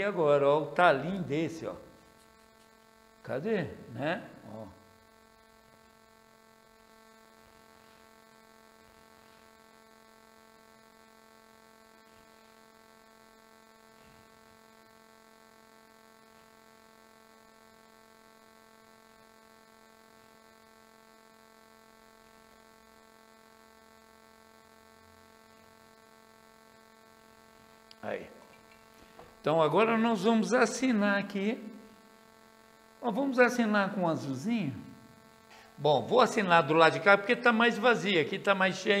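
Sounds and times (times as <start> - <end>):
faint electrical hum: 0.0 - 39.0.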